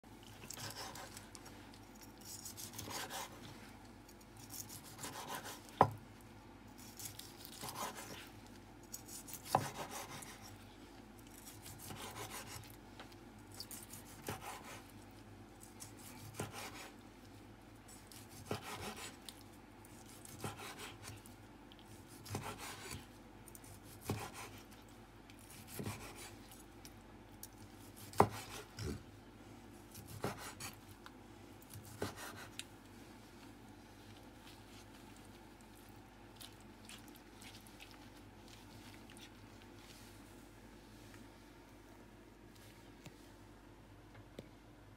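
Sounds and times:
knife slicing through meat crust: 0.4 - 3.5, 4.1 - 5.9, 6.7 - 8.3, 8.9 - 10.6, 11.3 - 12.8, 13.5 - 15.0, 15.6 - 17.0, 17.9 - 21.3, 21.9 - 24.8, 25.4 - 26.5, 27.8 - 29.0, 29.8 - 30.8, 31.7 - 32.7.

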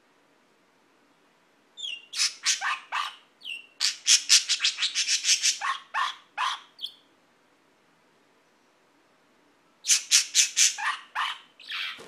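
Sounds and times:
budgerigar bark-like calls: 1.8 - 7.0, 9.8 - 12.0
bird chirps: 1.8 - 7.1, 9.8 - 12.0.

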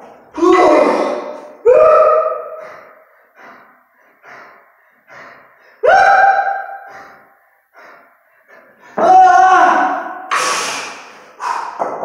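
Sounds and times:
person breathing hard: 2.4 - 5.9, 6.6 - 9.0, 10.1 - 12.0
loud gasping exhale: 10.3 - 11.8.

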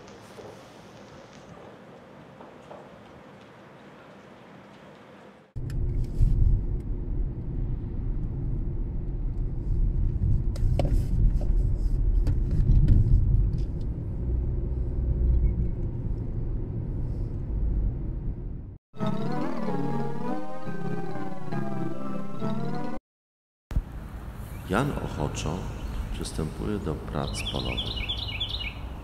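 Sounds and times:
car engine and road rumble: 5.6 - 18.8.

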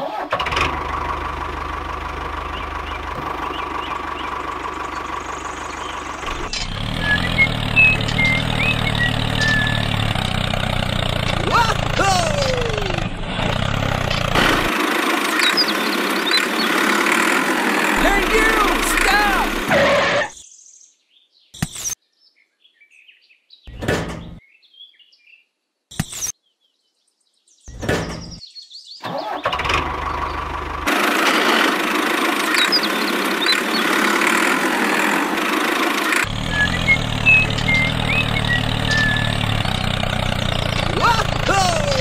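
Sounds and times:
tractor engine running: 0.0 - 20.3, 23.7 - 24.4, 29.1 - 42.0
birds chirping: 1.3 - 30.8, 31.7 - 42.0.

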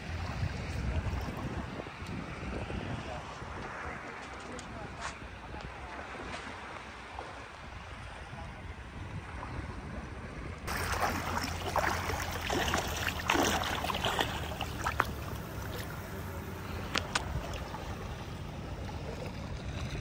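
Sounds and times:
low wind and water rumble: 0.0 - 20.0
fish splashing and thrashing: 10.7 - 20.0.

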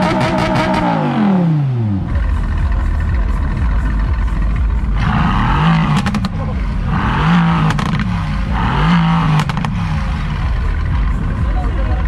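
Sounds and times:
car engine revving: 0.0 - 12.0
exhaust pops: 4.9 - 10.0.

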